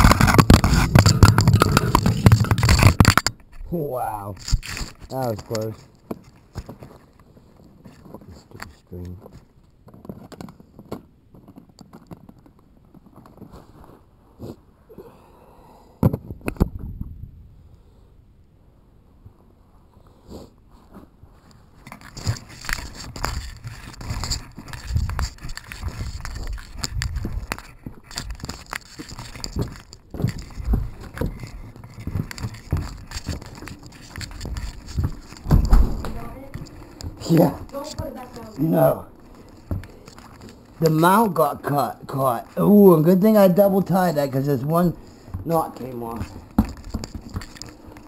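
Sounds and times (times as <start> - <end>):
camera mount knocking and scraping: 0.0 - 3.6, 21.8 - 37.2, 46.2 - 48.0
camera rubbing and scraping: 0.0 - 14.6, 20.3 - 48.0.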